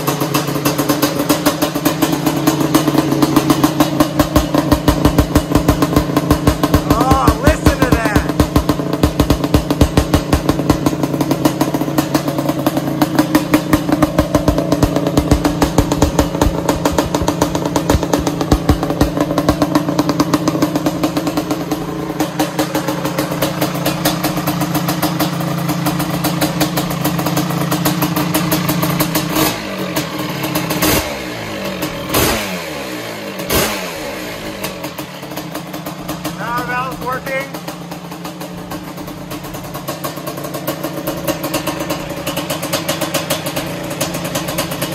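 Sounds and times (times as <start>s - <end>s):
engine throttle blips: 0.0s - 44.9s
two-stroke engine running: 0.0s - 44.9s.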